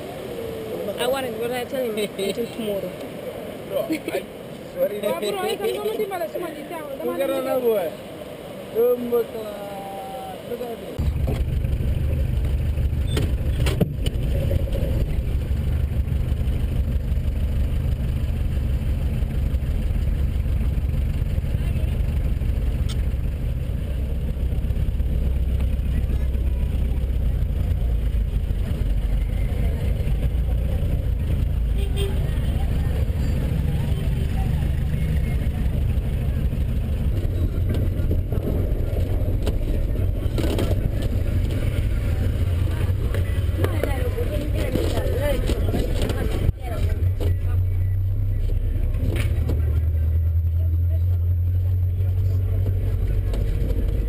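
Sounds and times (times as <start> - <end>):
engine rumbling: 6.7 - 54.0
vehicle body rattling: 11.0 - 30.4, 34.6 - 51.4, 52.1 - 54.0.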